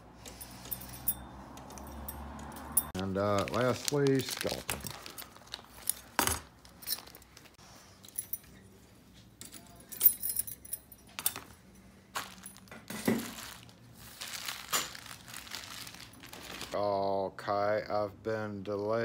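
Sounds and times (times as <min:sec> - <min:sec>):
metal keys clinking: 0:00.2 - 0:03.0, 0:04.6 - 0:13.6.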